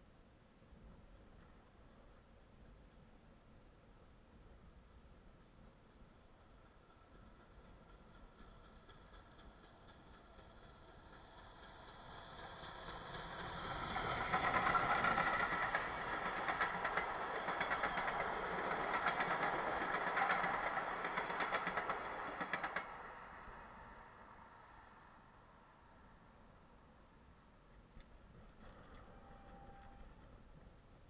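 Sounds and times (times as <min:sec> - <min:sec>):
steam locomotive passing: 0:02.7 - 0:31.0
wheels clacking over rail joints: 0:06.6 - 0:23.3.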